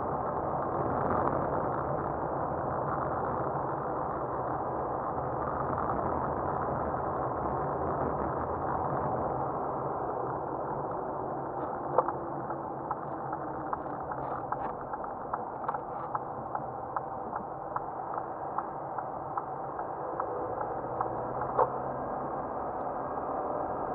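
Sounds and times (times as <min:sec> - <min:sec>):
car engine and tyre noise: 0:00.0 - 0:23.9
turn signal ticking: 0:10.7 - 0:22.0.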